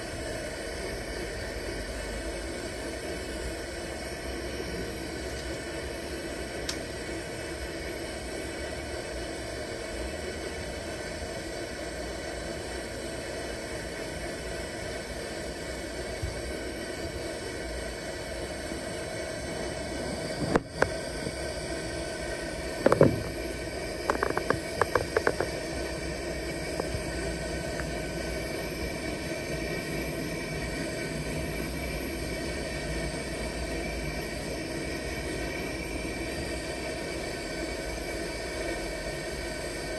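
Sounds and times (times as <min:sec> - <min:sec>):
camp stove burner hissing: 0:00.0 - 0:39.9.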